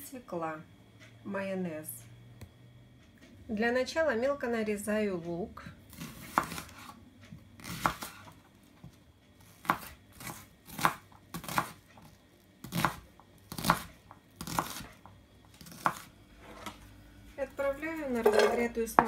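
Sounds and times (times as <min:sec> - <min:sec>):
knife slicing onion on board: 0:05.9 - 0:07.0, 0:07.6 - 0:16.7.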